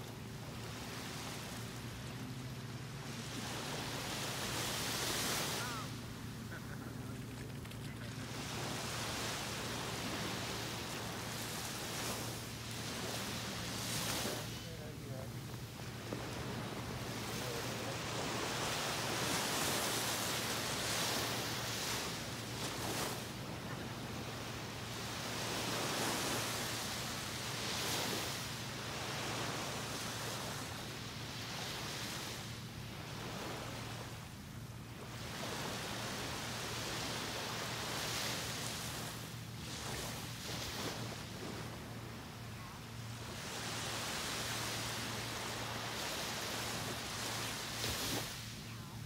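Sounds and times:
waves breaking on beach: 0.0s - 49.0s.

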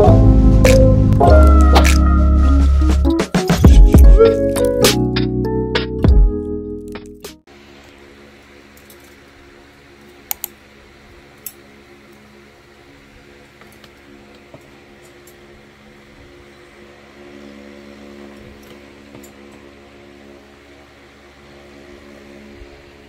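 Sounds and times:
steady mechanical hum: 7.5s - 23.0s.

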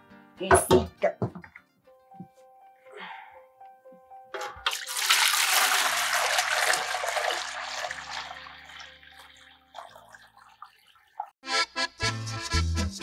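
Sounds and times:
milk pouring into metal pot: 4.6s - 11.3s.

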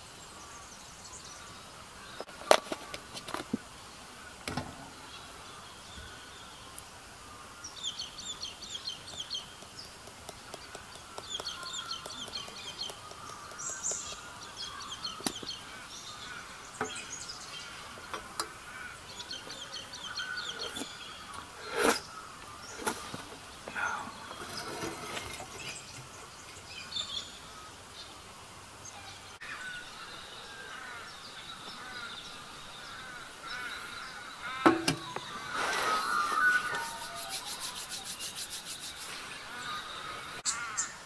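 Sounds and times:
bird chirping: 3.9s - 41.0s.

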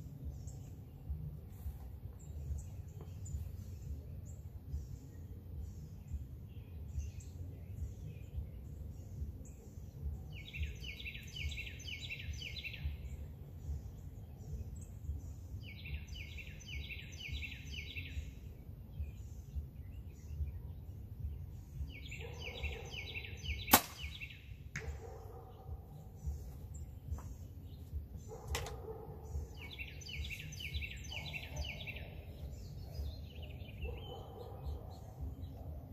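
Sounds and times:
songbirds trilling: 0.0s - 35.9s
bow release snap: 23.7s - 24.2s.

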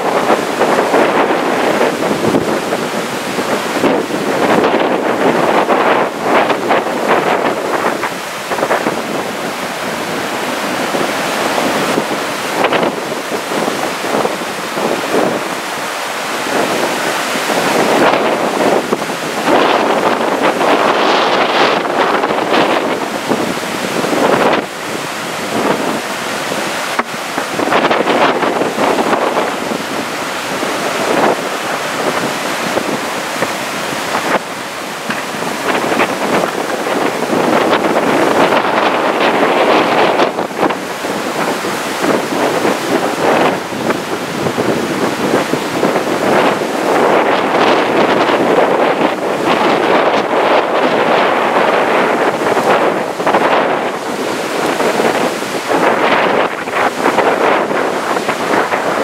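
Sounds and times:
choppy sea and breaking surf: 0.0s - 59.0s
gusty wind buffeting microphone: 0.0s - 59.0s.

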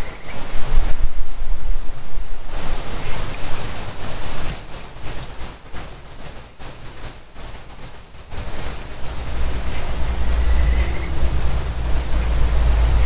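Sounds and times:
running water: 0.0s - 13.0s
wind gusting on microphone: 0.0s - 13.0s.

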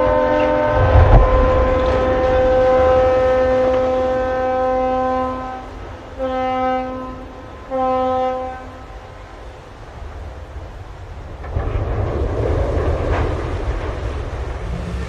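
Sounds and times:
ship's horn blasts: 0.0s - 9.8s
low rumble of water from hull: 0.0s - 15.0s.

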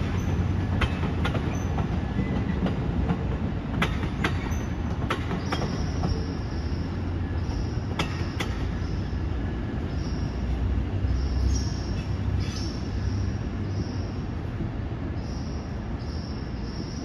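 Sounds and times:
wheels clicking over rail joints: 0.0s - 7.0s, 7.8s - 9.0s
train rumbling past: 0.0s - 17.0s.

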